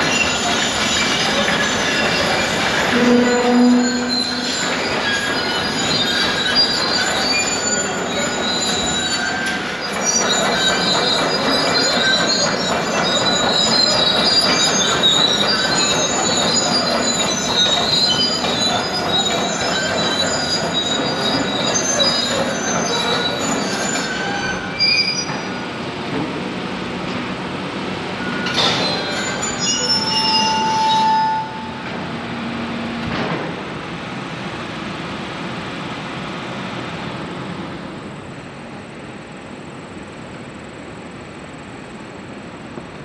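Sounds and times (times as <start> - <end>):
metal squeals and screeches: 0.0 - 25.7, 28.2 - 31.8.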